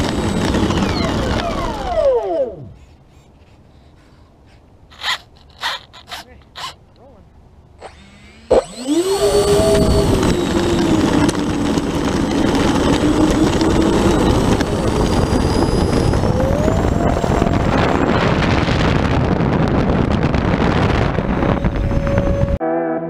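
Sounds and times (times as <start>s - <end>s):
electric fans whining: 0.0s - 2.8s, 7.8s - 22.6s.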